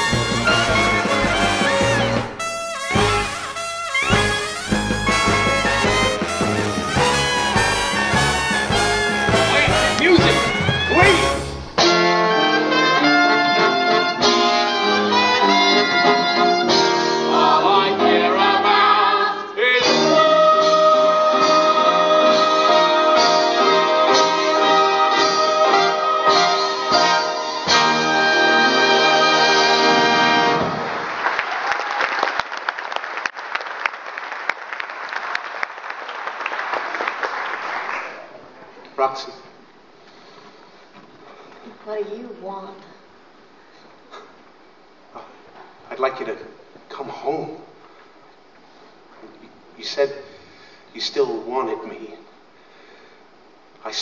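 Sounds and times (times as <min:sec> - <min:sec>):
stage band playing sustained chords: 0:00.0 - 0:17.4
audience applauding: 0:04.0 - 0:11.6, 0:30.4 - 0:38.6.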